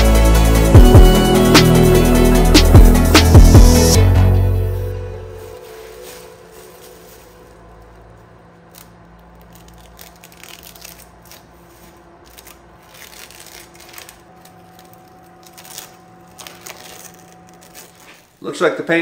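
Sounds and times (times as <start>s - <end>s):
plastic crinkling: 5.2s - 19.0s
masking tape peeling off: 5.4s - 18.3s.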